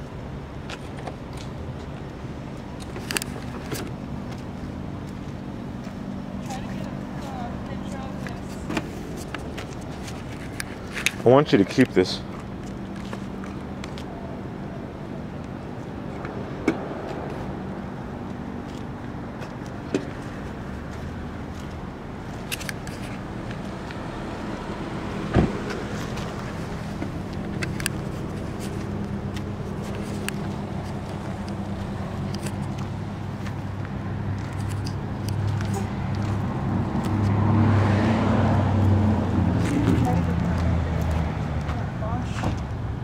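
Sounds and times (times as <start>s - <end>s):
low engine hum: 0.0s - 43.0s.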